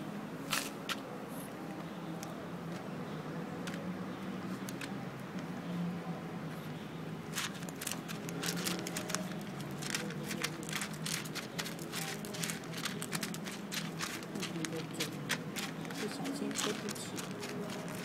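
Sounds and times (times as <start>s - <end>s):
cat eating from a foam box: 7.3s - 18.0s.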